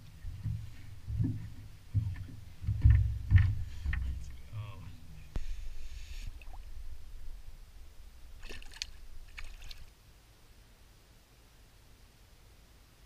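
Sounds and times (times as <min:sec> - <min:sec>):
fish splashing in water: 0:08.4 - 0:09.9
wash of water: 0:08.4 - 0:09.9.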